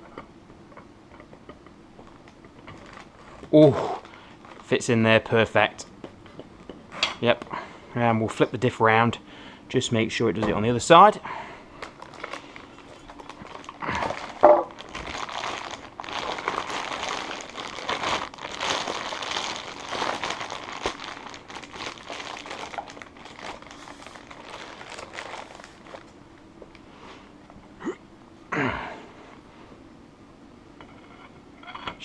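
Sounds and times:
plastic bag crinkling: 0:02.0 - 0:04.9, 0:11.7 - 0:26.2.

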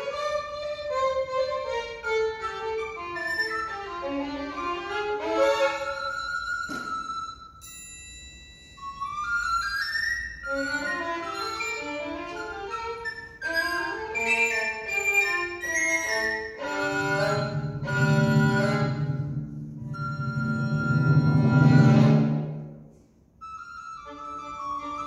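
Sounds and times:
violin melody: 0:00.0 - 0:07.6, 0:10.2 - 0:22.8, 0:23.5 - 0:25.0
chamber music ensemble: 0:00.0 - 0:08.1, 0:08.7 - 0:25.0.

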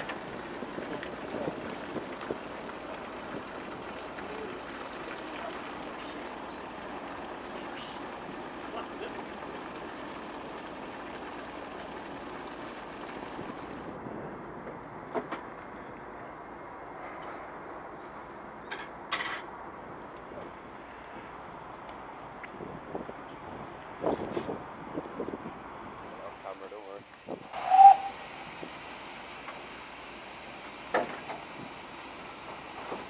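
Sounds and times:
water jet hissing and splashing: 0:00.0 - 0:14.0, 0:26.0 - 0:33.0.

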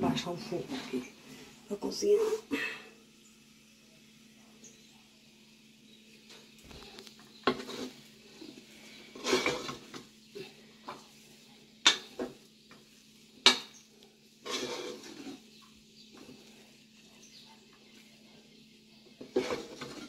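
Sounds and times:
spoon scraping thick dough: 0:06.7 - 0:20.0.

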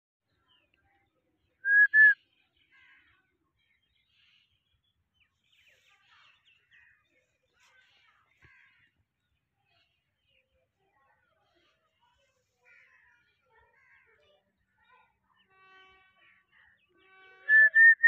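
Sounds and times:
faint bird chirps: 0:00.3 - 0:18.0
person whistling: 0:01.7 - 0:02.2, 0:17.5 - 0:18.0.

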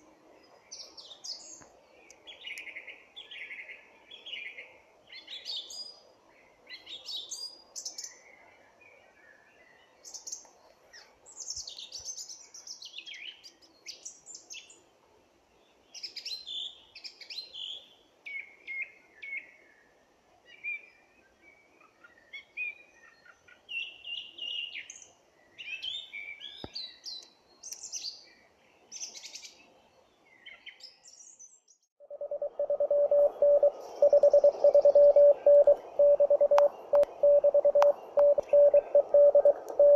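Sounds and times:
birds singing: 0:30.3 - 0:39.9
morse code tone: 0:32.1 - 0:39.9.

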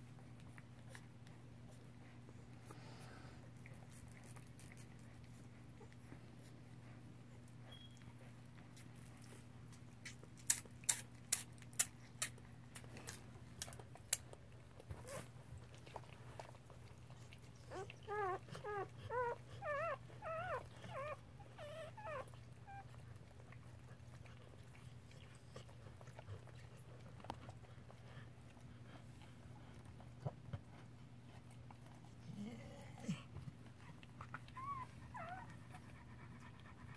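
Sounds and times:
puppy squeaking: 0:07.7 - 0:08.1, 0:34.5 - 0:35.5.

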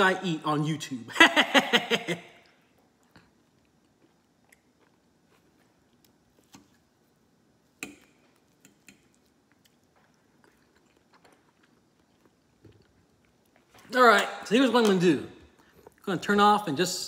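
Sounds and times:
soft chewing: 0:02.4 - 0:13.9, 0:14.8 - 0:16.3.

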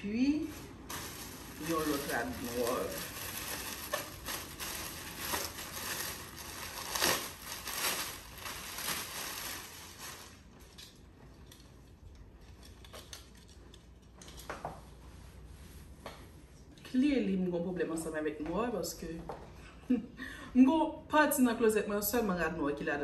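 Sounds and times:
plastic mailer bag crinkling: 0:00.4 - 0:10.8.

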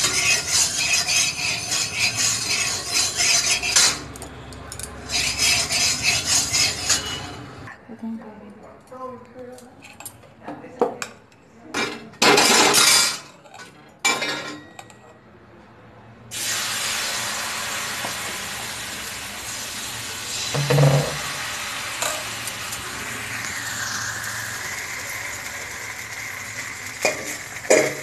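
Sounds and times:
utensils clinking and scraping: 0:00.0 - 0:07.7, 0:11.8 - 0:15.1
batter sizzling in hot pan: 0:16.3 - 0:28.0.

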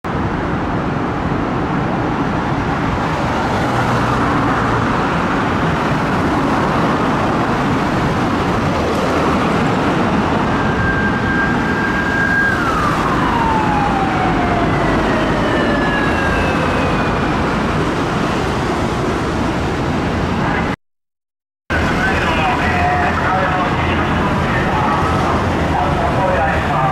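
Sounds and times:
road traffic passing: 0:00.1 - 0:20.8, 0:21.7 - 0:26.9
police siren: 0:05.2 - 0:18.7, 0:21.7 - 0:26.9.

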